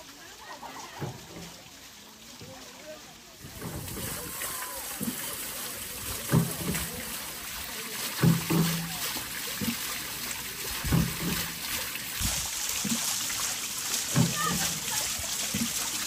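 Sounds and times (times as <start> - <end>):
water splashing off water wheel: 0.0 - 16.0.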